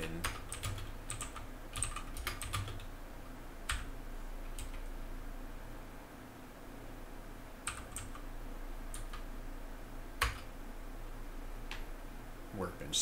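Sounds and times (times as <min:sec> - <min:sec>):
keyboard keystrokes: 0:00.0 - 0:02.9, 0:07.7 - 0:08.2, 0:10.2 - 0:10.5.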